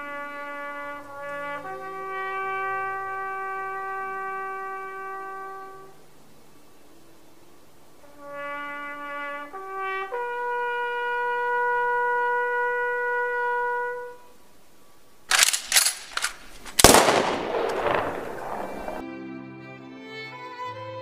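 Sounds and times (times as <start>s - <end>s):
trumpet call: 0.0s - 6.1s, 8.0s - 14.4s
gunfire sound effects: 15.3s - 19.0s
loud bang: 15.3s - 19.0s.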